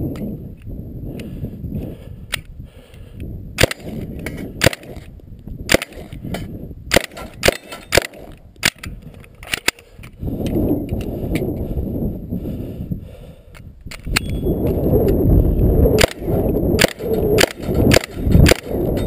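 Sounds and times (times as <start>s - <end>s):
submachine gun single shots: 4.6s - 5.0s, 5.7s - 6.1s, 6.9s - 8.8s, 16.8s - 18.7s.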